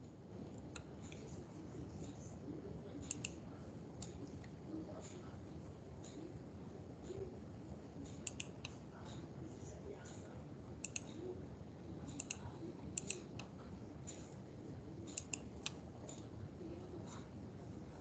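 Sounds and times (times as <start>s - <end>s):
computer mouse clicking: 0.6s - 1.3s, 3.0s - 3.4s, 8.1s - 8.8s, 10.8s - 11.3s, 12.1s - 14.2s, 15.1s - 16.3s.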